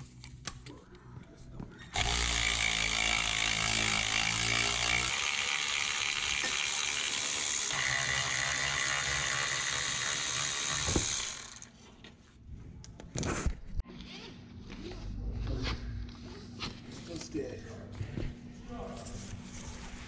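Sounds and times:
electric ratchet spinning bolt: 2.0s - 11.8s.

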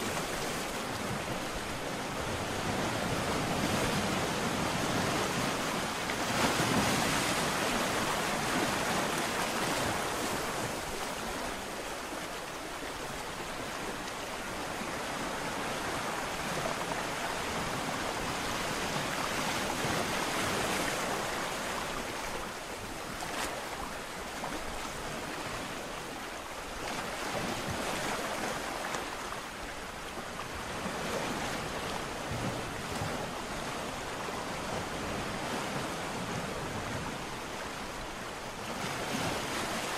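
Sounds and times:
surf breaking on shore: 0.0s - 11.8s.

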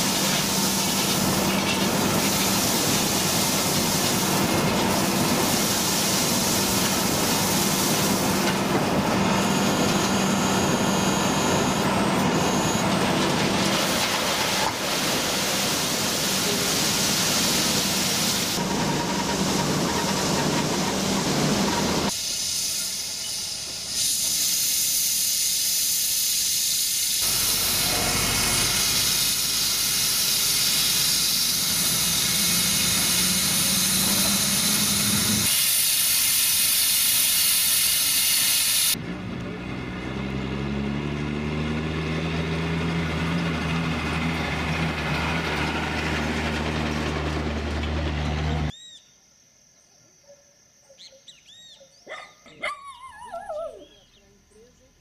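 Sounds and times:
steam locomotive hissing: 0.0s - 39.0s
low engine sound rising in pitch: 27.2s - 35.5s, 39.0s - 48.7s.

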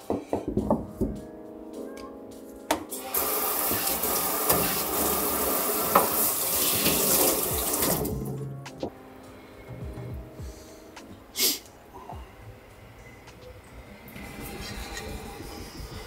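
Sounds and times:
knock: 0.0s - 1.2s
faucet water splashing on stone: 3.1s - 8.3s.

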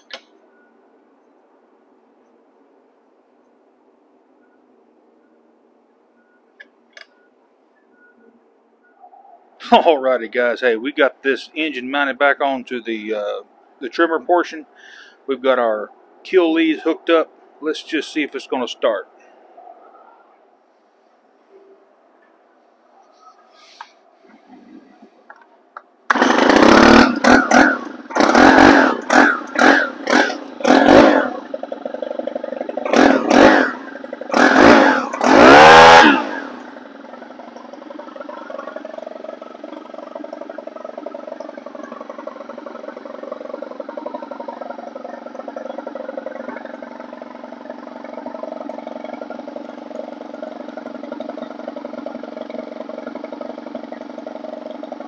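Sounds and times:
recoil starter pulls: 26.1s - 55.0s
trimmer engine firing and idling: 26.1s - 55.0s.

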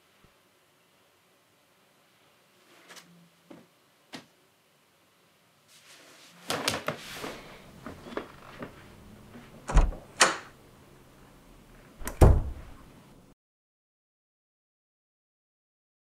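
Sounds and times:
door heavy thud: 9.7s - 10.4s, 12.0s - 12.8s
door clicks and knocks: 9.7s - 10.5s, 12.0s - 12.7s
door latch sharp click: 9.7s - 10.5s, 12.0s - 12.6s.

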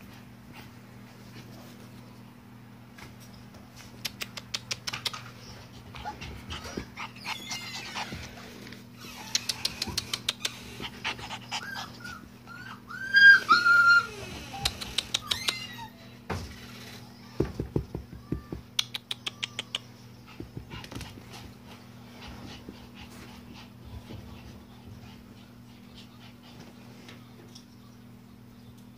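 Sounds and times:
puppies yipping and whimpering: 5.8s - 16.1s.

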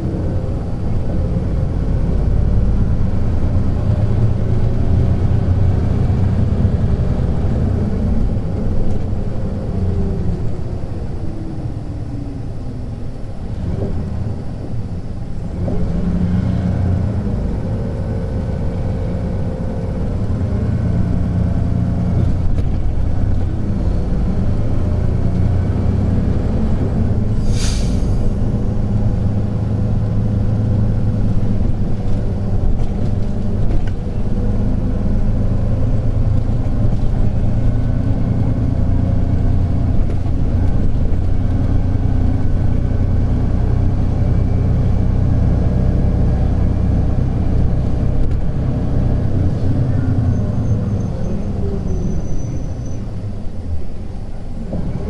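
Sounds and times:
bus diesel engine running: 0.0s - 55.0s
brief hiss: 27.4s - 28.3s.

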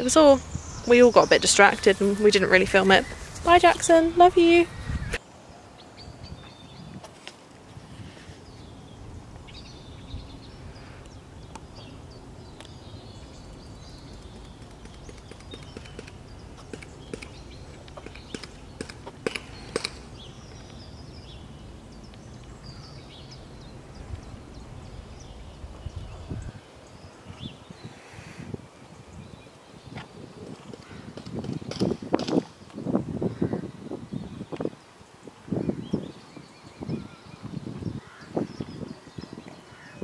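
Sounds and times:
hooves and tack clicking: 13.5s - 20.8s, 30.0s - 32.8s.

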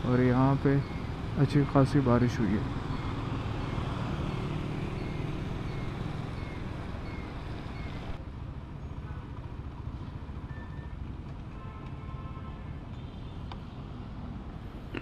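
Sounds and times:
motorcycle engine running: 2.7s - 8.2s.

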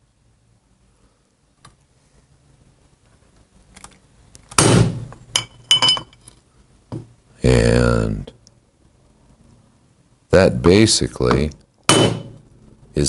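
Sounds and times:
mallet striking metal socket: 11.9s - 12.4s.

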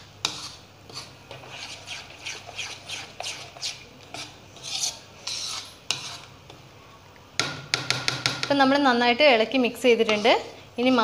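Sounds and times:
spoon scraping ceramic bowl: 0.2s - 6.4s, 10.0s - 11.0s.

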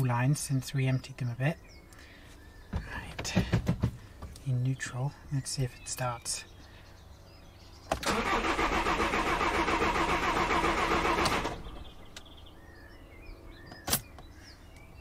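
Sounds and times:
starter motor cranking: 7.9s - 11.7s.

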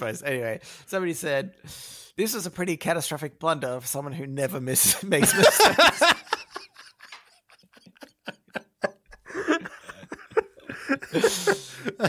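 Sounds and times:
people laughing: 5.2s - 12.0s.

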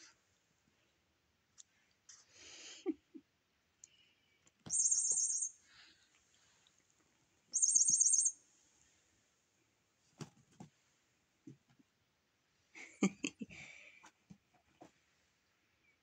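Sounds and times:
electronic bird chirping toy: 4.7s - 5.6s, 7.5s - 8.4s.

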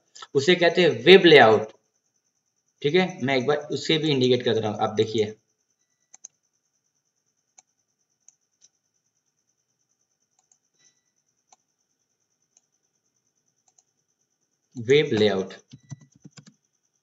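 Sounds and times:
faint steady high hiss: 0.0s - 17.0s
computer mouse clicks: 6.0s - 6.4s, 7.5s - 8.8s, 10.3s - 10.9s, 11.5s - 11.7s, 12.5s - 12.7s, 13.6s - 13.9s, 15.1s - 16.6s.

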